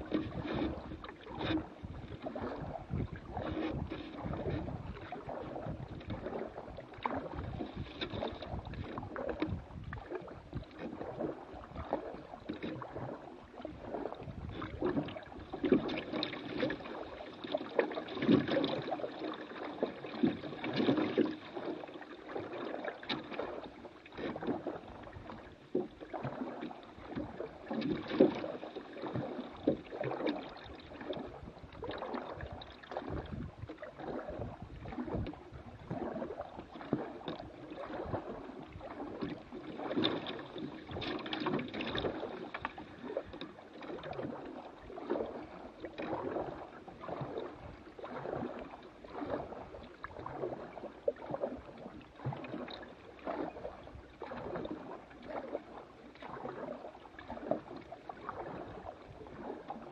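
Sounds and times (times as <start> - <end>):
paddle splashes: 0.0 - 59.9
water gurgling along hull: 0.0 - 59.9.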